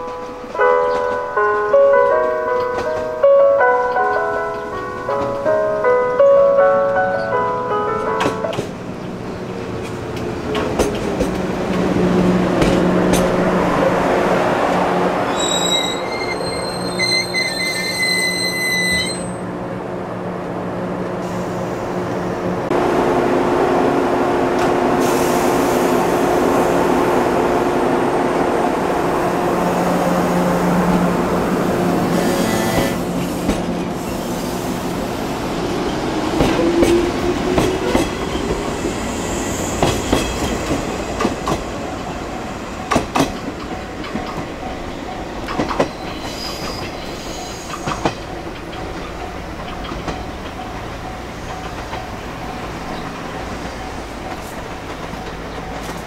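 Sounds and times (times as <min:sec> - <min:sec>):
electric train humming: 0:00.0 - 0:56.0
train wheels clicking over rail joints: 0:09.7 - 0:13.4, 0:35.8 - 0:42.2, 0:42.8 - 0:56.0
wheel squeals: 0:15.3 - 0:19.4, 0:45.5 - 0:48.9.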